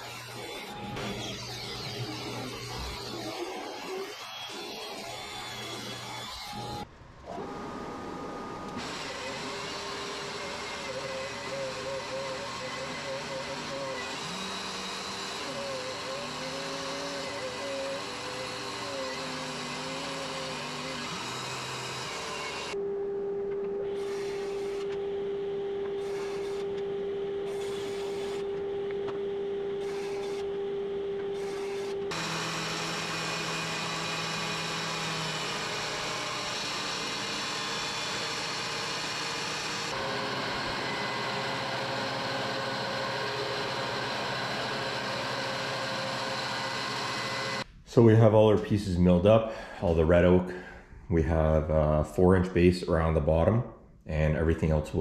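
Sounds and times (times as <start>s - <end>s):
thickness planer running boards: 8.2s - 22.8s, 23.5s - 47.7s.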